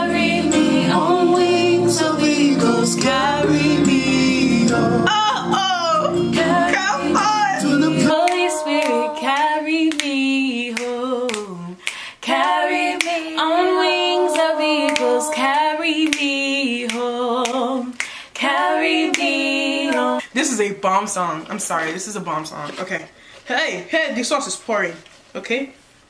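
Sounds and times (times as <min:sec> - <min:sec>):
low backing music: 0:00.0 - 0:10.0
women singing gospel song: 0:00.0 - 0:20.3.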